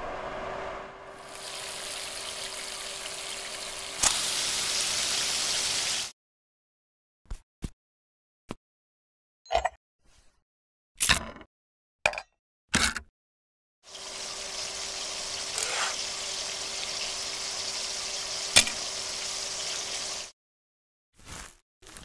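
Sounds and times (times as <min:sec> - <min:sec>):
food sizzling in a frying pan: 0:01.1 - 0:06.1, 0:13.9 - 0:20.3.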